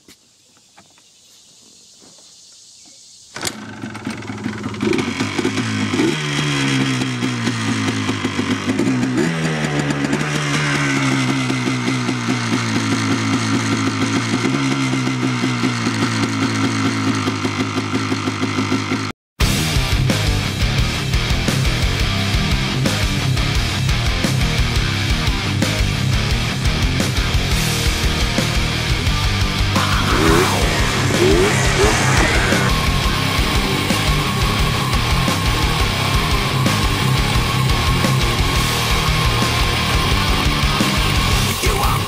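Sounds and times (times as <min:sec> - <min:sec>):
two-stroke engine idling: 0:03.5 - 0:19.1.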